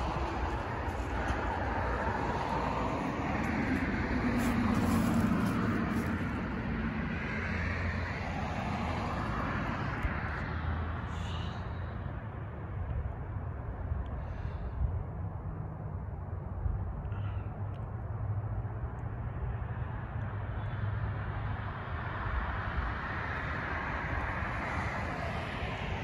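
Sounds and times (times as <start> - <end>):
car driving past: 0.0 - 11.5.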